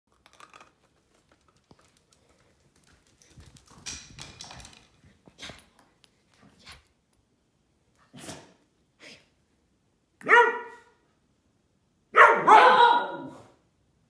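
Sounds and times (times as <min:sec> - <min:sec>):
dog claws clicking on wooden floor: 0:00.1 - 0:06.5.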